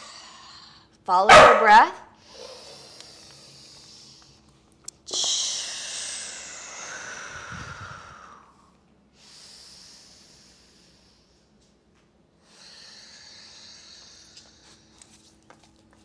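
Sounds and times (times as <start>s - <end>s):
deep breathing: 2.2s - 11.6s, 12.4s - 14.9s.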